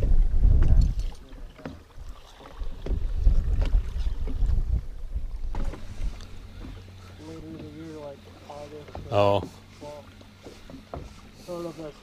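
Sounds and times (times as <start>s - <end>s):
wind buffeting microphone: 0.0s - 1.3s, 1.9s - 7.7s.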